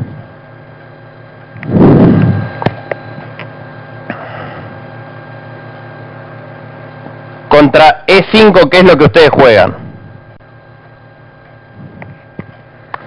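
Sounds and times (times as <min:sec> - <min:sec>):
electrical hum: 0:00.0 - 0:13.0.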